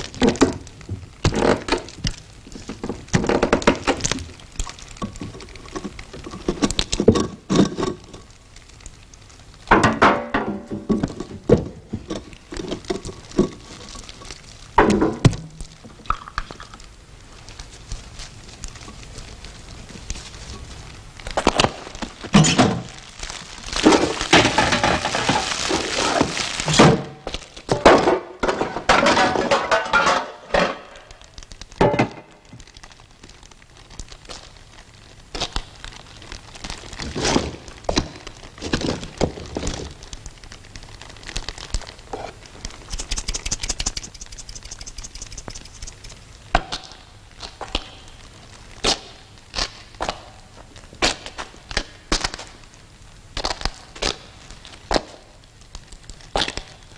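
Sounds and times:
fast rasping rhythm: 42.8 - 46.2.

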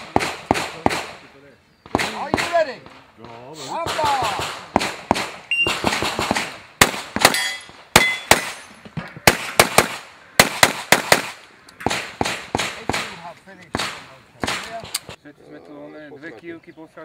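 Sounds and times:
pistol shots: 0.0 - 3.0, 3.7 - 15.1
metallic ring: 7.4 - 8.8.

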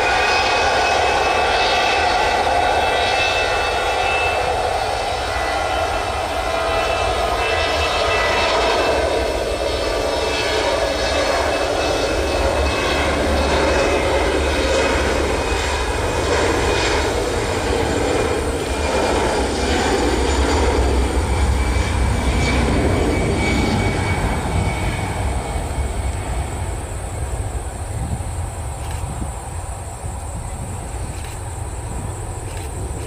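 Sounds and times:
jet engines roaring at take-off: 0.0 - 33.0.

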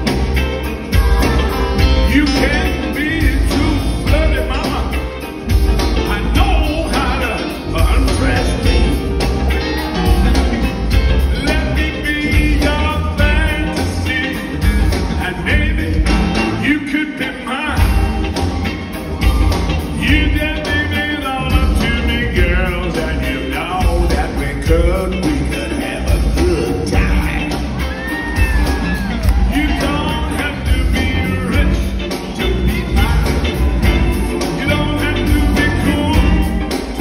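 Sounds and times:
man singing: 0.0 - 18.4, 19.3 - 37.0
live rock band playing: 0.0 - 37.0.

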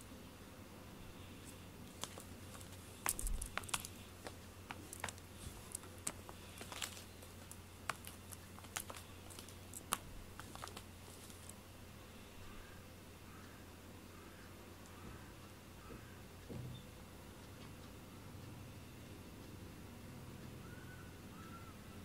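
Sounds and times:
toy clicking and tapping on floor: 2.0 - 10.8.

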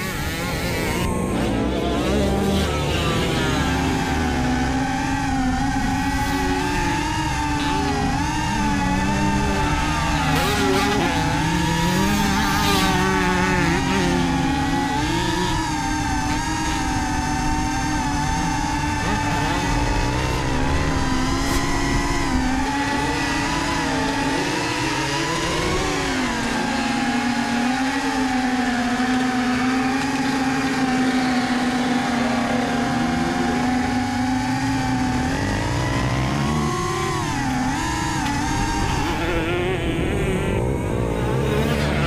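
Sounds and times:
drone propellers humming: 0.0 - 42.0.

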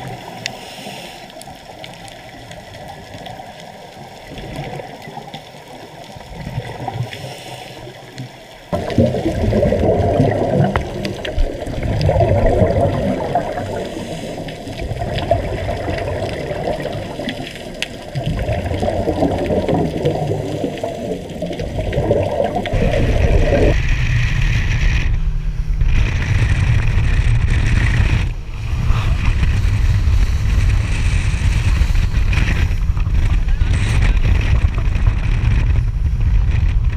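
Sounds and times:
regulator bubbles gurgling underwater: 0.0 - 36.9
rush of boat wake: 22.0 - 36.9
wind: 22.6 - 36.9
boat engine running: 22.7 - 36.9.

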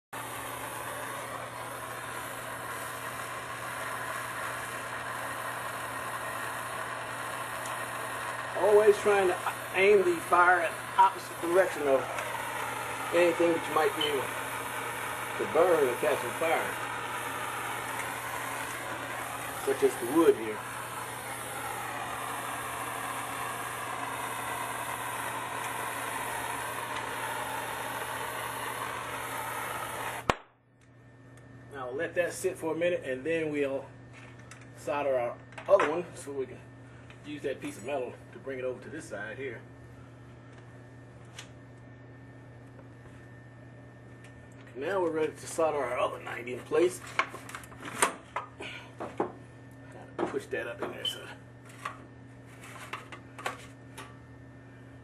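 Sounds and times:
gas torch hissing: 0.0 - 30.4, 44.8 - 49.3, 50.2 - 51.9
low hum: 0.2 - 33.0.

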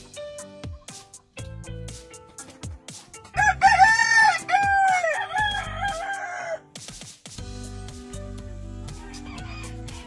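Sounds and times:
rooster crowing: 3.4 - 6.6.

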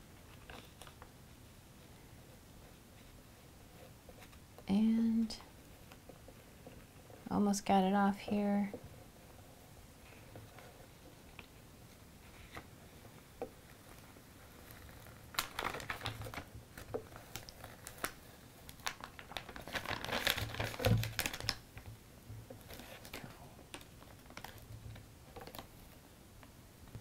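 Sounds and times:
transfer tape peeling and crinkling: 13.7 - 21.9, 22.5 - 25.7.

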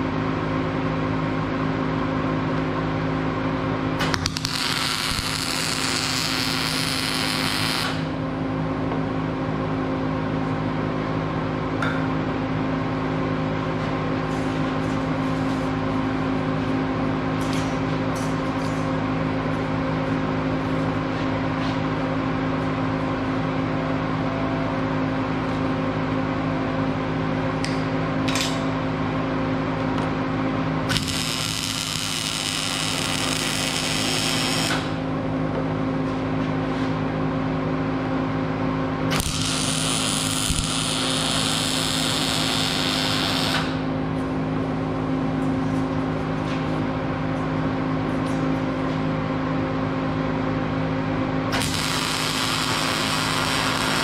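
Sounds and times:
welding arc crackling: 4.0 - 8.1, 30.9 - 35.0, 39.2 - 43.8, 51.6 - 54.0.

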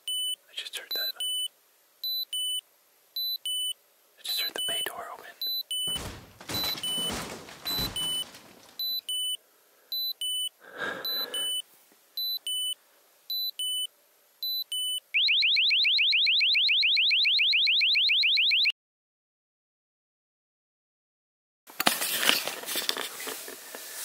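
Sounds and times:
bumping and scraping under floor: 5.9 - 9.0
electronic alarm siren: 14.7 - 18.7.

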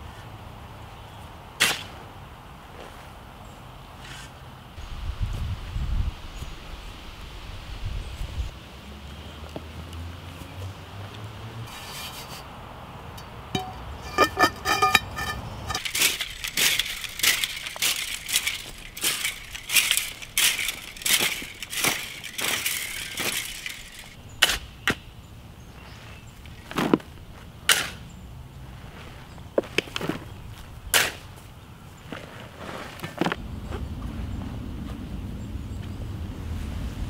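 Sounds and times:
shovel scraping and scooping soil: 11.7 - 12.5, 13.6 - 24.9, 25.8 - 27.1, 32.1 - 33.4
ringing metal clinks: 13.6 - 24.2.

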